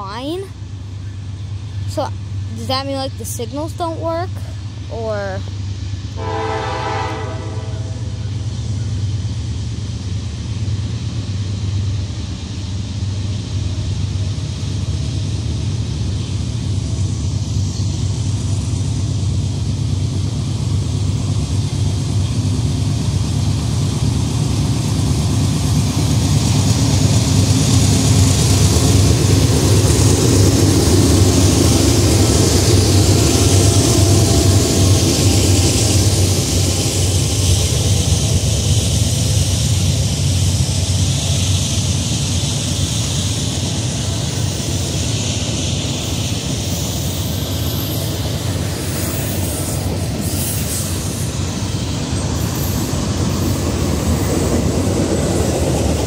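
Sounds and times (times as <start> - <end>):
diesel locomotive engines droning: 0.0 - 56.0
train horn blast: 6.2 - 8.2
wheel and rail noise: 7.0 - 56.0.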